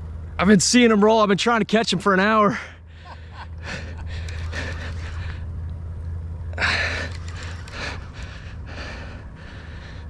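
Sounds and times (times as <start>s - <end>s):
low steady hum: 2.6s - 10.0s
man breathing hard: 6.6s - 10.0s.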